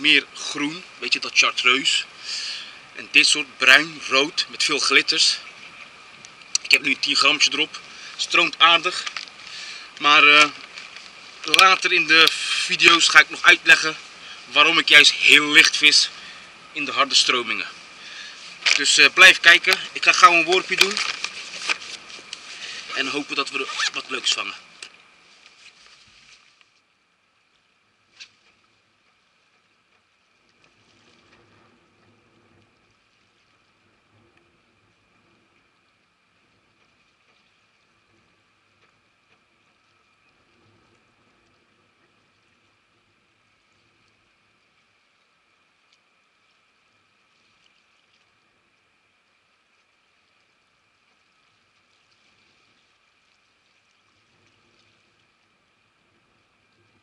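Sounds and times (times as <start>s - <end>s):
faint lapping water: 0.0s - 57.0s
water lapping on rocks: 5.3s - 26.8s.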